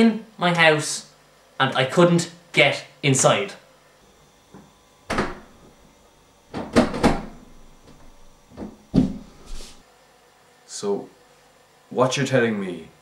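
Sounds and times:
door clunks and knocks: 5.1 - 5.6, 6.5 - 9.3.

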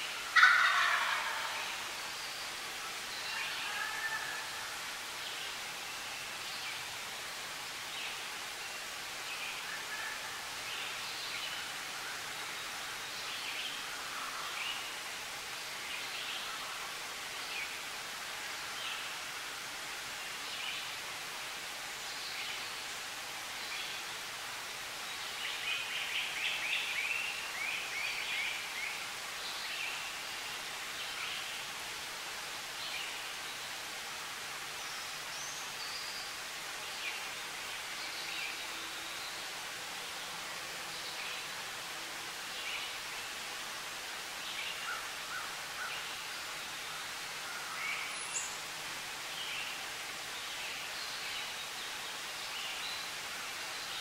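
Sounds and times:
steady woodland hiss: 0.0 - 54.0
songbird chirps: 34.6 - 43.4.

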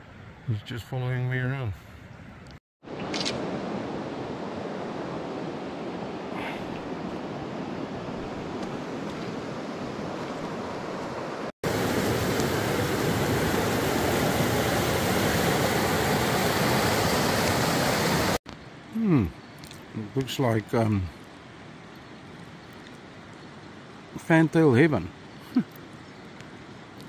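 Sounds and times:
river water rushing: 2.9 - 18.4.

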